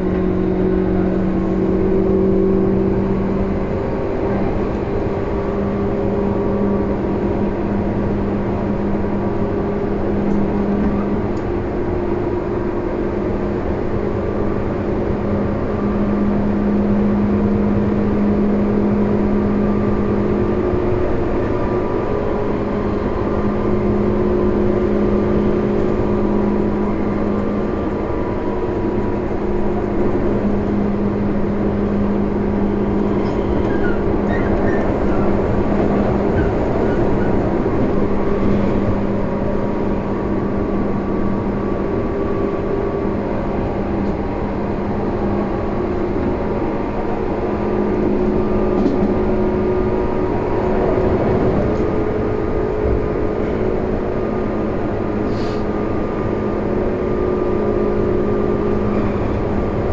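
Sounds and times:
train wheels rumbling on rail: 0.0s - 59.9s
low hum: 15.7s - 55.1s.

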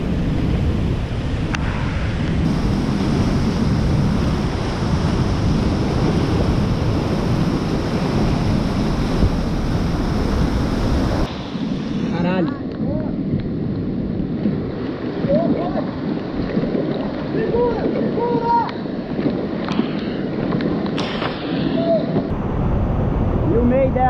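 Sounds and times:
whitewater river roaring: 0.0s - 12.5s
wind rumble on microphone: 0.0s - 24.0s.

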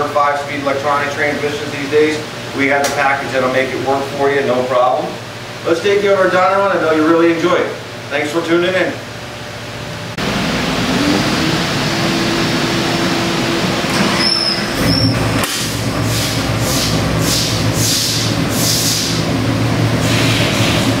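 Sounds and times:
engine running: 9.9s - 21.0s
pulsing hiss: 15.5s - 19.3s.

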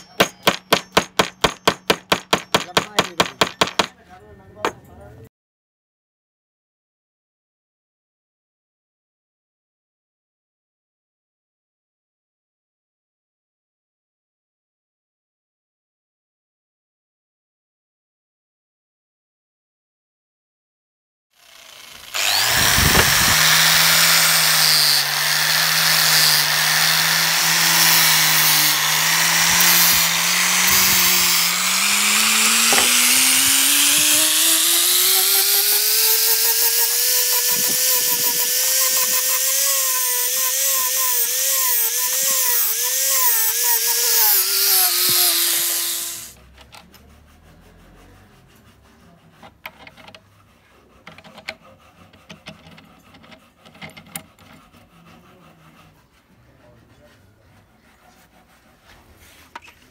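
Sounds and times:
power sander motor whirring: 21.4s - 46.4s.

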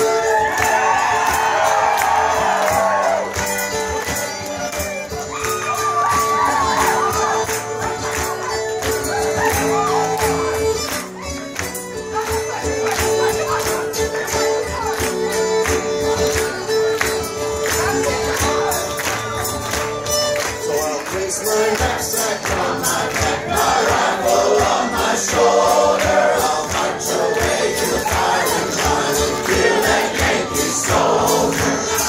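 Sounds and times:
string band led by fiddle: 0.0s - 32.0s.

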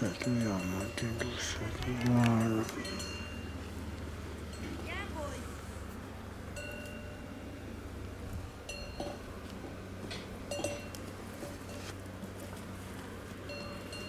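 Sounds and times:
steady low hum: 0.0s - 14.0s
light metallic clinks: 6.6s - 7.2s, 10.1s - 11.8s.

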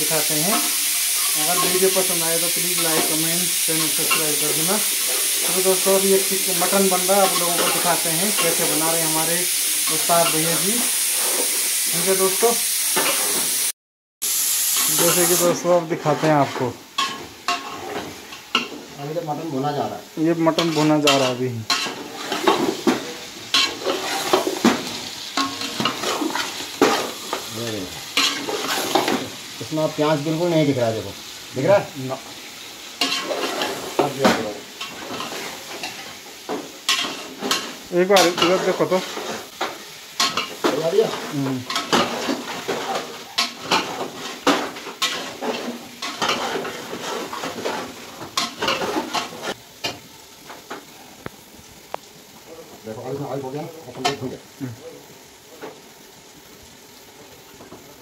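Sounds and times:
meat sizzling in a pot: 0.0s - 58.0s
metal ladle scraping pan: 16.0s - 19.0s, 20.5s - 27.5s, 28.1s - 29.5s, 33.0s - 49.6s.

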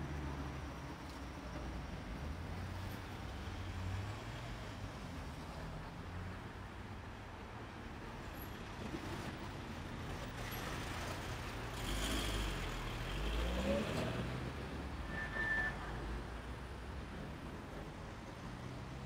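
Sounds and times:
car traffic passing: 9.2s - 19.0s.

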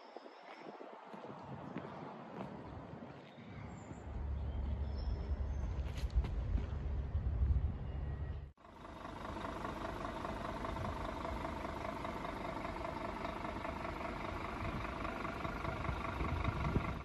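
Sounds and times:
diesel truck engine idling: 7.2s - 17.0s.

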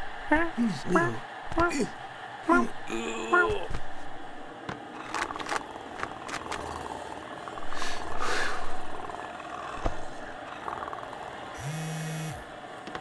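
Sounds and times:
cat purring: 5.0s - 11.3s.

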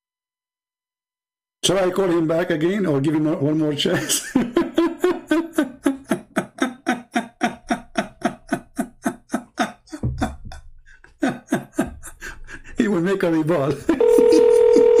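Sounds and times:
man laughing: 3.8s - 15.0s.

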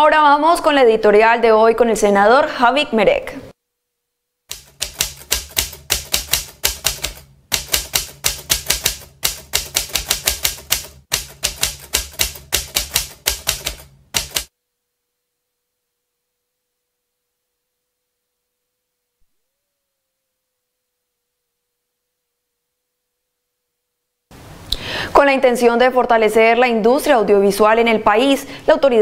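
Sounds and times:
typewriter keystroke clacks: 4.5s - 14.5s.

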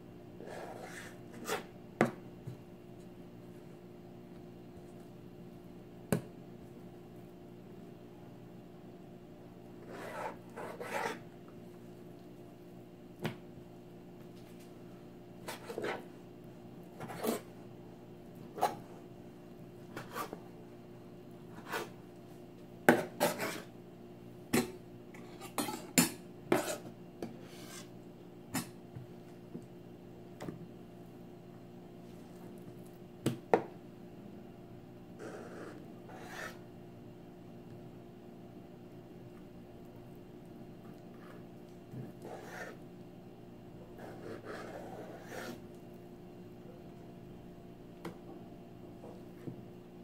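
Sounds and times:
low steady hum: 0.0s - 50.0s
knife scraping fish fillet: 22.9s - 23.7s.

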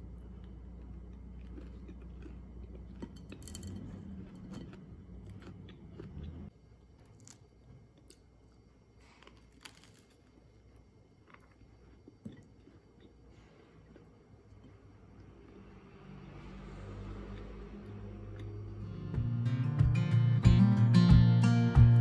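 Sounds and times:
chewing crunches: 0.0s - 15.6s
low background hum: 0.0s - 22.0s.

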